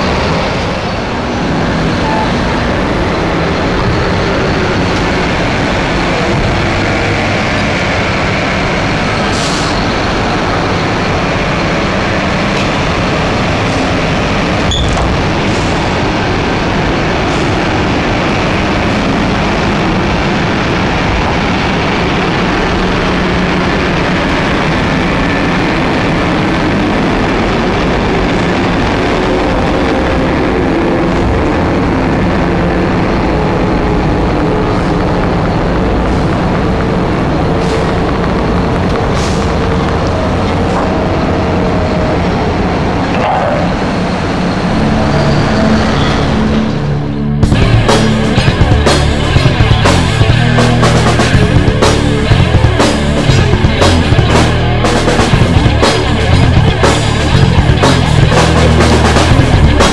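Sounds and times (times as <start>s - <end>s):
heavy diesel machinery droning: 0.0s - 59.9s.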